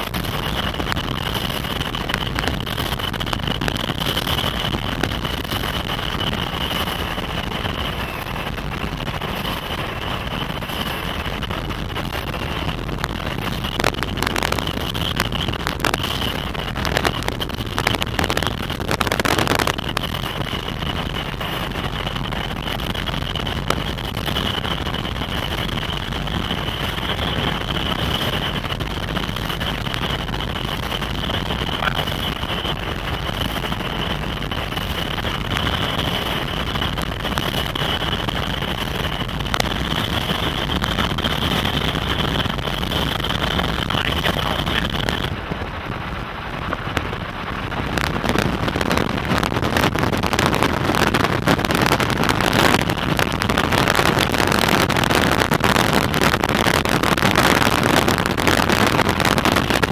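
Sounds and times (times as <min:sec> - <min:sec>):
road and wind noise in a vehicle: 0:00.0 - 0:59.9
steady high whine: 0:00.0 - 0:59.9.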